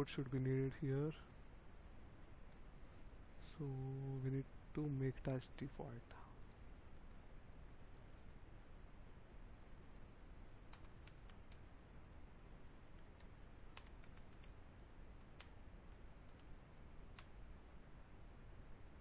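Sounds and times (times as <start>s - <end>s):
low steady background noise: 0.0s - 19.0s
keyboard keystrokes: 10.7s - 11.6s, 13.0s - 14.6s.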